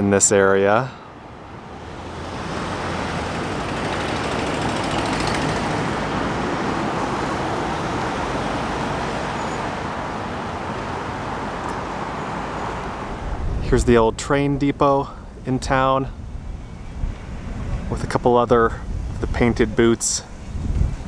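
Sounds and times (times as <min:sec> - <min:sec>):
passing vehicles rushing: 0:00.0 - 0:21.0.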